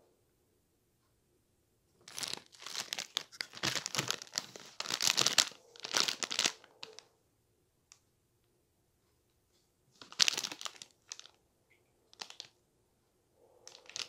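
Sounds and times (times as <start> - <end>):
plastic wrapper crinkling: 2.0 - 7.0, 10.0 - 11.4, 12.1 - 12.6, 13.7 - 14.0.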